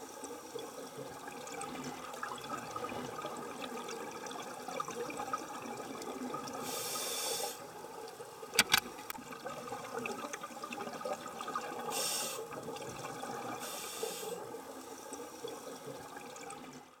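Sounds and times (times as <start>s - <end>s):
bubbles hissing: 10.9s - 14.5s.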